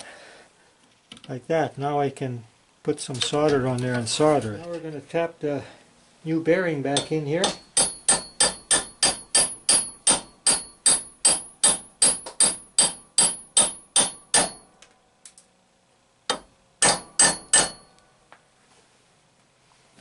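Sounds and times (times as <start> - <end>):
hammer tapping metal: 7.0 - 14.8, 16.3 - 18.0.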